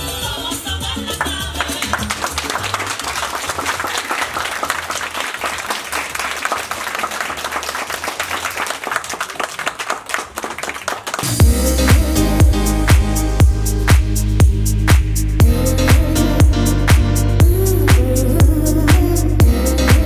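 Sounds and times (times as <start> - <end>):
music with strong beat: 0.0 - 2.3, 11.2 - 20.0
audience applauding: 1.0 - 11.4.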